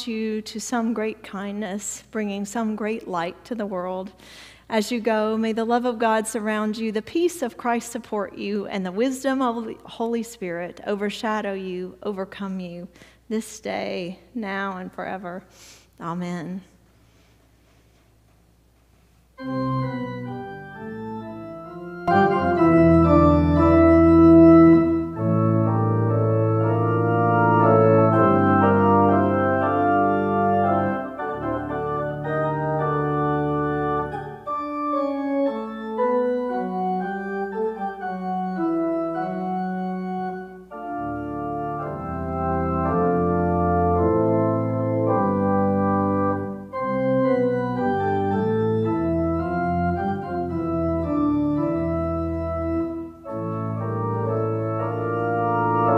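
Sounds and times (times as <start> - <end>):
church organ chords: 19.4 - 55.9
deep organ bass notes: 19.4 - 55.9.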